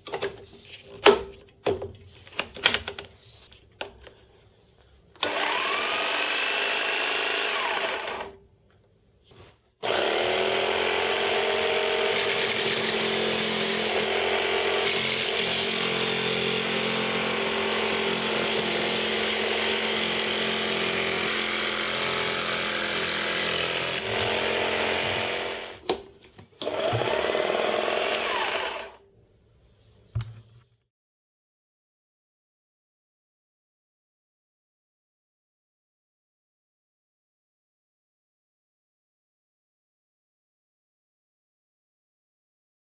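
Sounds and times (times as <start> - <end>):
jigsaw running: 5.2 - 8.4, 9.8 - 25.8, 26.6 - 29.0.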